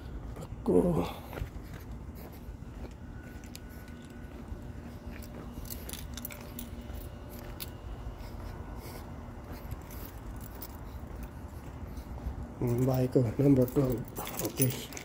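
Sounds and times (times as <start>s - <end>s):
faint steady hum: 0.0s - 15.0s
light clicks and jingles: 1.6s - 15.0s.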